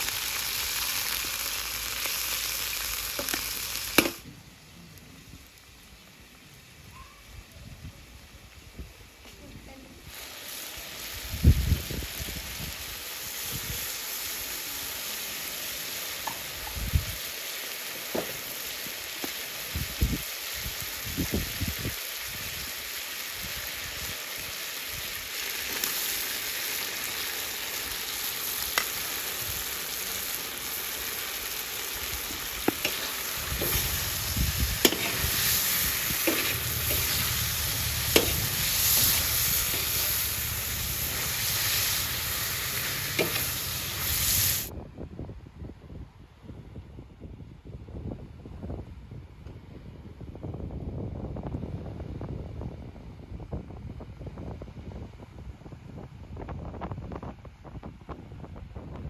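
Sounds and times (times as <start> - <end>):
meat sizzling in hot oil: 0.0 - 4.7, 10.1 - 44.7.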